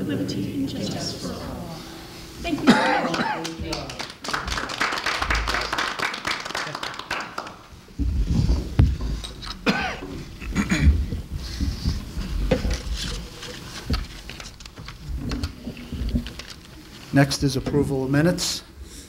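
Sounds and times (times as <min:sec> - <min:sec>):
muffled voices: 0:00.0 - 0:04.2
people clapping: 0:02.5 - 0:07.9
low thumps: 0:07.8 - 0:13.0
rustling: 0:07.8 - 0:17.5.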